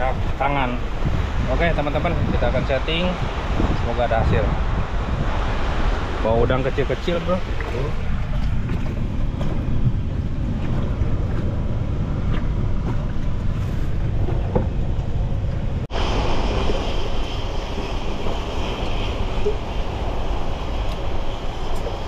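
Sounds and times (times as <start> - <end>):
rushing churning water: 0.0 - 22.0
wind buffeting microphone: 0.0 - 22.0.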